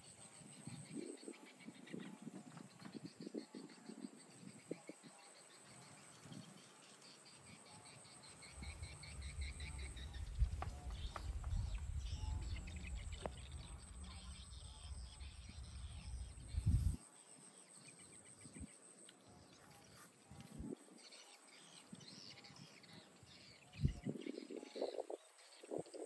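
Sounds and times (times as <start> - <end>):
wind rumbling on microphone: 0.0 - 5.3, 8.5 - 17.1, 20.2 - 21.0, 21.9 - 26.0
high insect drone: 0.0 - 20.9, 21.6 - 26.0
birds chirping: 0.6 - 17.0.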